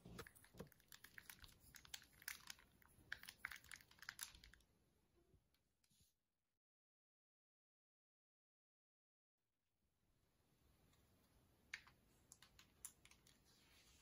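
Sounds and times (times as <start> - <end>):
small clicks and crackles: 0.0 - 4.6, 10.9 - 13.8.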